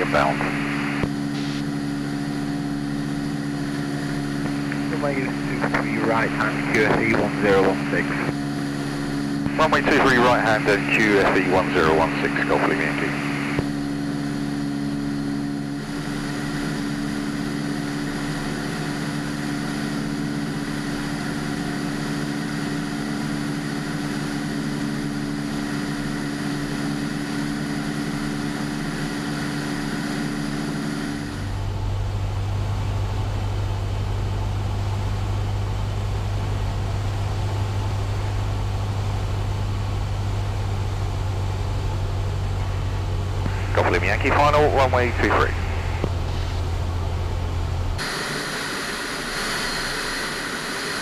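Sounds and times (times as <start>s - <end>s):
airplane engine drone: 0.0s - 51.0s.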